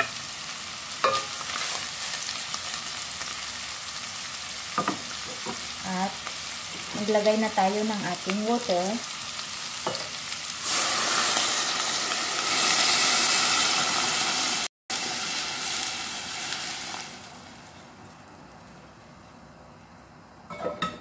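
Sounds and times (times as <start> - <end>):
pot hissing: 9.0 - 17.8.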